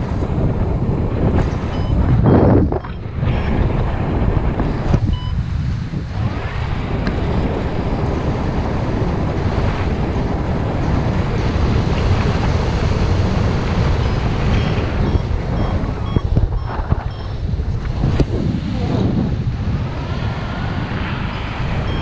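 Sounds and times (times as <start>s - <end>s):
strong wind buffeting microphone: 0.0s - 22.0s
faint high electronic beeps: 1.7s - 3.1s, 14.0s - 17.4s, 21.3s - 22.0s.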